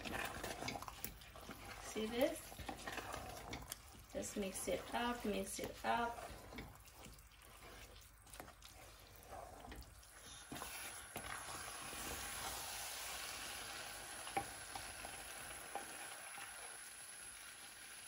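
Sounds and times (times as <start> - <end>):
wooden spoon scraping pot: 0.0 - 12.6
stew sizzling in a pot: 0.0 - 18.0.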